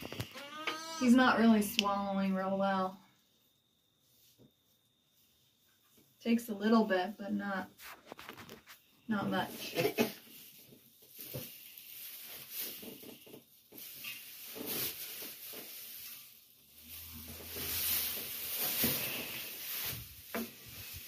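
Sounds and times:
blanket and straw rustling: 7.6 - 21.0.

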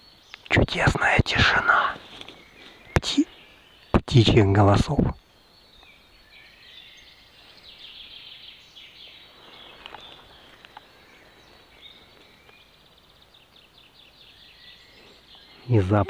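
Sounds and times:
distant songbirds singing: 0.0 - 16.0
faint clicks: 9.8 - 11.0.

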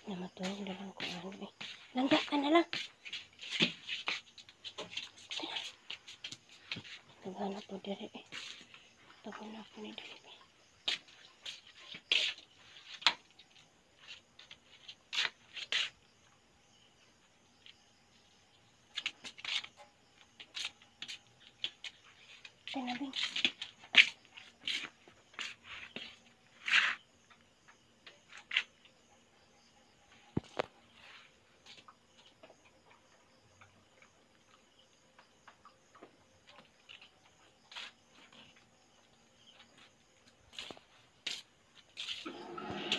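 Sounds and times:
night insects chorus: 0.0 - 42.9
faint irregular ticks and clicks: 30.1 - 42.2.

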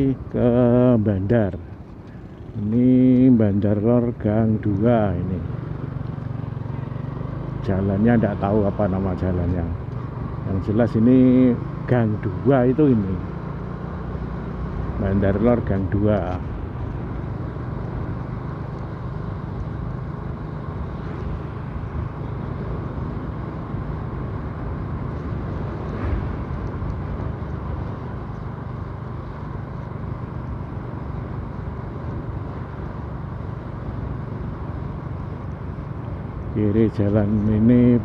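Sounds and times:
road noise: 0.0 - 38.0
vehicle engine hum: 0.0 - 38.0.

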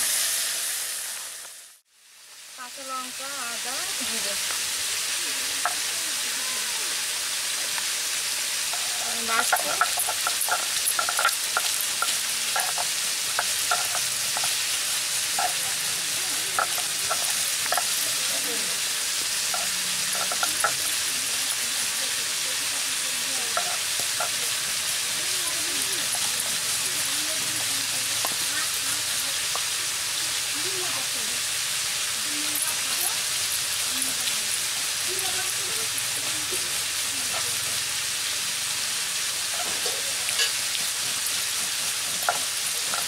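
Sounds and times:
stone roller grinding: 8.6 - 30.3, 32.5 - 37.8, 39.4 - 43.0.

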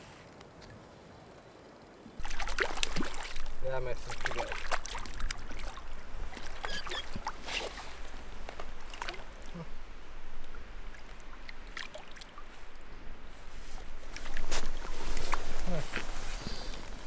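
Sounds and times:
water splashing and dripping: 2.2 - 13.0.

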